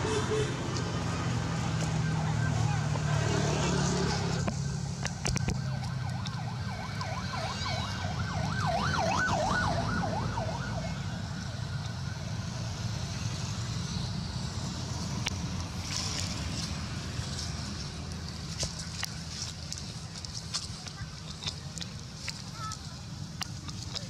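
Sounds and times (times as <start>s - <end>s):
distant wailing siren: 0.6s - 15.1s.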